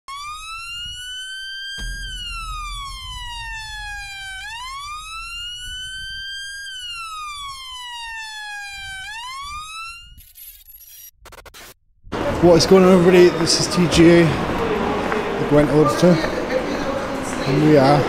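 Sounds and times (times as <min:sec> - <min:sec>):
wailing siren: 0:00.0 - 0:10.4
low rumble: 0:01.8 - 0:09.0.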